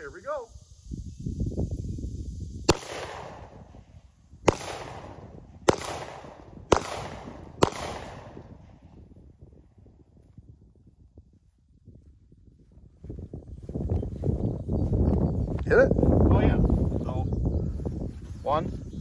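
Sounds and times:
handgun shots with echo: 0:02.7 - 0:03.6, 0:04.5 - 0:08.6
low rumble of cart on grass: 0:09.1 - 0:19.0.

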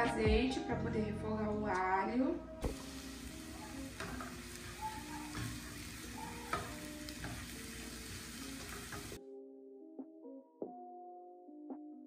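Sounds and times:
garlic sizzling in oil: 0:02.6 - 0:09.2.

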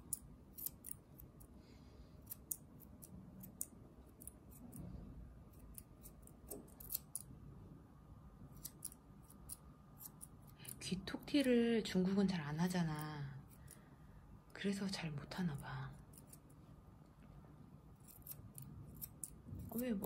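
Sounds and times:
scissors snipping fur: 0:00.0 - 0:01.5, 0:02.2 - 0:04.9, 0:05.5 - 0:07.3, 0:08.5 - 0:11.8, 0:12.6 - 0:13.8, 0:15.4 - 0:16.6, 0:18.0 - 0:20.0.

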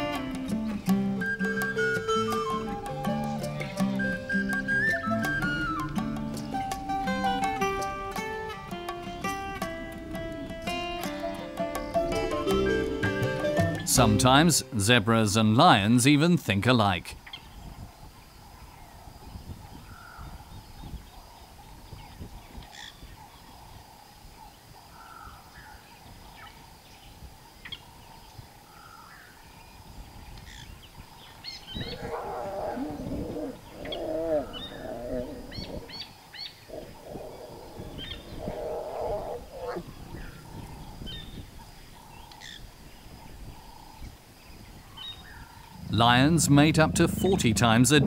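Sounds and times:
faint bird chirps: 0:18.6 - 0:45.9
lions growling: 0:31.8 - 0:39.9.

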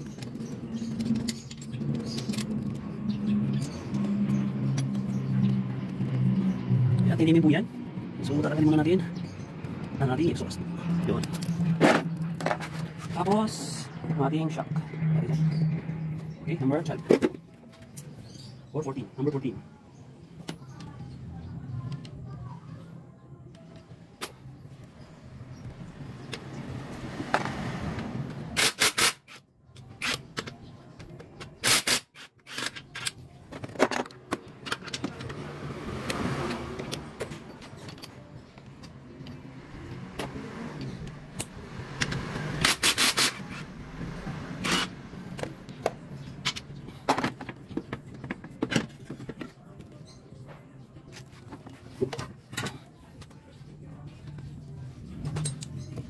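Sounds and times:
parts and tools scraping: 0:00.0 - 0:06.2, 0:11.0 - 0:18.2, 0:27.2 - 0:43.8, 0:44.5 - 0:49.7.

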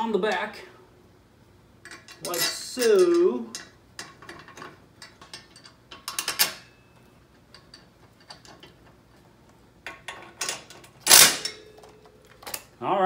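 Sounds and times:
metal parts clattering: 0:01.8 - 0:09.0, 0:09.9 - 0:12.7
metal parts clicking and rattling: 0:01.8 - 0:12.7.

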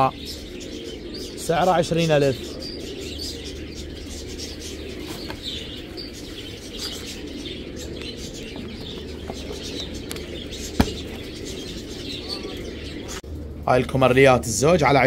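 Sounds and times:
pigeons and doves cooing: 0:00.0 - 0:13.6
steady low hum: 0:00.0 - 0:15.0.

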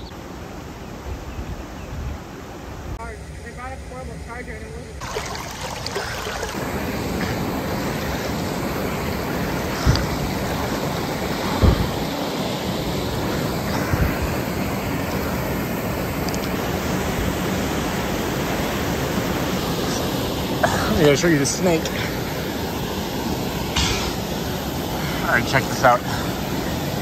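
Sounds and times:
water rushing: 0:02.4 - 0:27.0
low thumps: 0:11.4 - 0:12.1.

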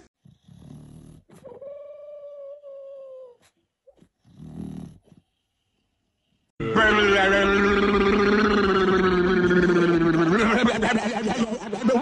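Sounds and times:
dog whining: 0:01.3 - 0:05.0.

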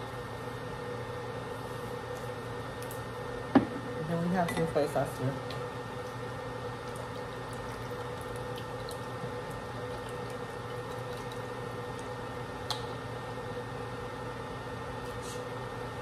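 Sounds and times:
induction cooker hum and fan: 0:00.0 - 0:16.0.

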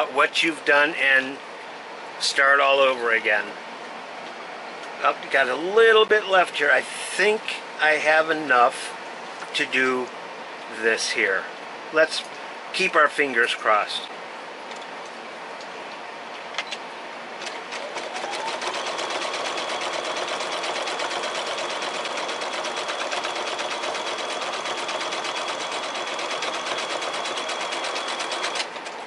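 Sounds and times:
sewing machine stitching: 0:17.5 - 0:29.0
sewing machine clicks: 0:17.7 - 0:29.0.

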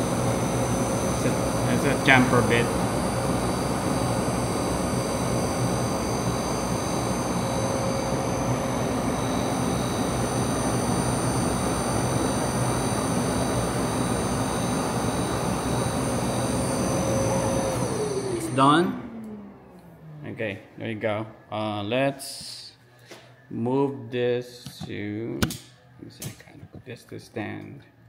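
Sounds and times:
router spindle high whine: 0:00.0 - 0:21.9.

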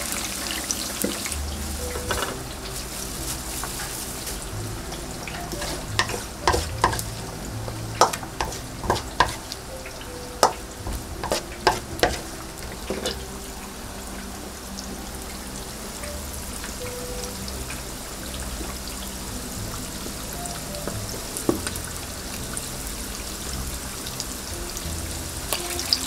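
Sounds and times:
food deep-frying in oil: 0:00.0 - 0:26.0
sharp clacks and knocks: 0:05.4 - 0:09.5, 0:10.4 - 0:13.2.

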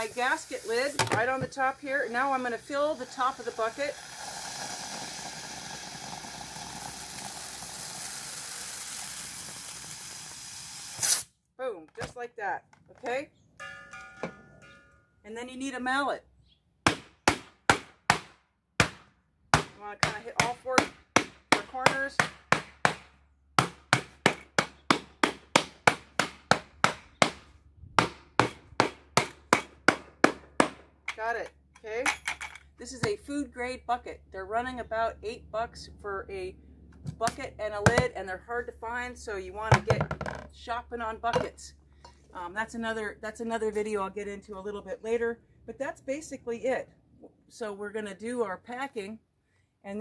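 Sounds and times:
gas hissing from a blowgun: 0:00.0 - 0:11.3.

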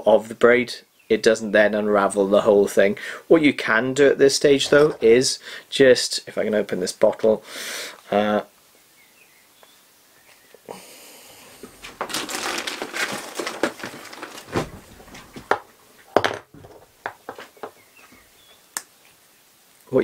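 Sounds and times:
rustling: 0:04.2 - 0:05.4, 0:11.3 - 0:19.2
plastic bottle scraping: 0:04.5 - 0:05.3, 0:11.5 - 0:15.6.

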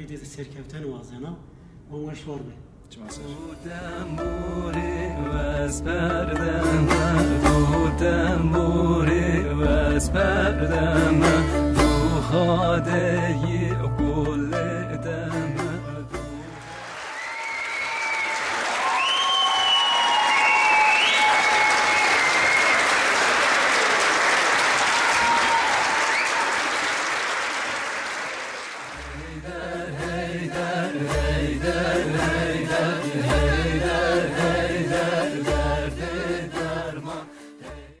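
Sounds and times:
music with steady bass beat: 0:04.1 - 0:16.5
audience applauding: 0:16.5 - 0:29.3
scattered cheers: 0:16.6 - 0:27.0.

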